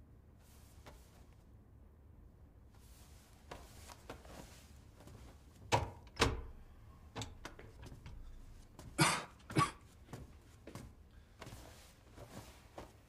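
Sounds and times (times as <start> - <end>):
light footsteps: 7.3 - 13.0
man coughing: 9.0 - 9.9.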